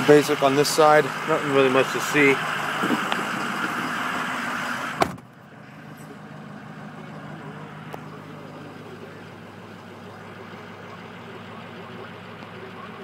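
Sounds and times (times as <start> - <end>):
diesel engine idling: 0.0 - 13.0
truck door shutting: 4.9 - 5.4.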